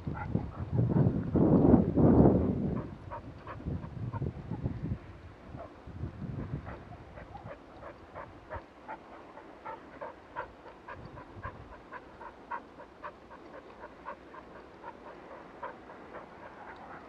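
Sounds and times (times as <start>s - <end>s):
wind rumble on microphone: 0.0s - 17.0s
dog panting: 0.1s - 1.1s, 2.8s - 4.2s, 6.4s - 17.0s.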